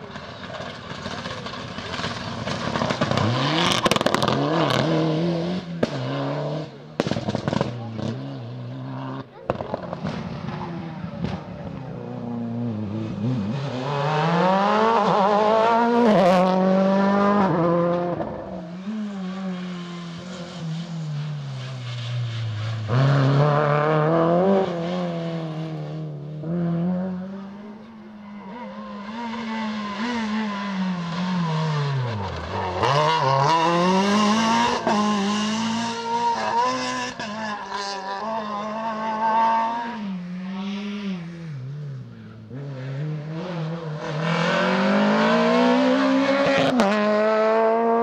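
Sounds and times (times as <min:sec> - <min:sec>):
rally car engines revving: 0:00.0 - 0:48.0
sharp crack: 0:07.0 - 0:07.9.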